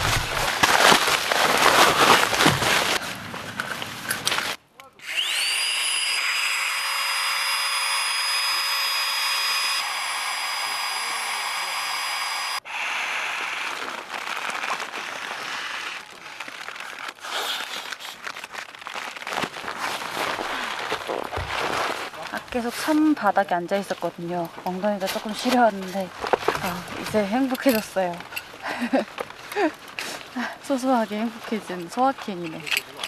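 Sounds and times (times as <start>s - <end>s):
fabric rushing and crinkling: 0.0s - 4.6s, 13.6s - 23.0s
electric air pump whining: 5.0s - 13.8s.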